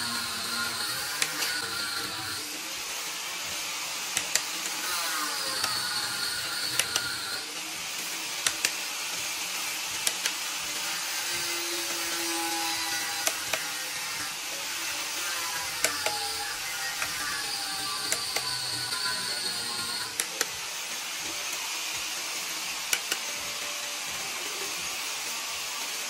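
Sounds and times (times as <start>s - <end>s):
ratchet wrench clicking: 4.2s - 7.4s, 8.3s - 8.9s, 10.0s - 10.5s, 15.6s - 20.7s, 22.9s - 23.3s.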